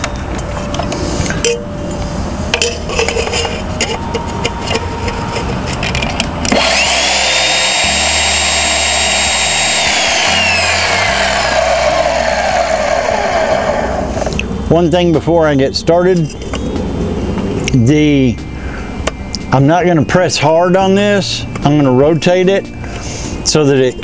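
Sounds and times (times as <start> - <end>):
chop saw motor whining: 3.5 - 14.4.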